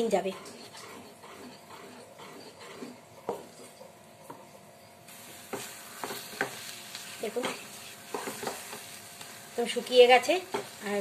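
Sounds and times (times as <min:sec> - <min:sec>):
spatula scraping metal pan: 0:00.0 - 0:04.0
ghee sizzling: 0:00.0 - 0:11.0.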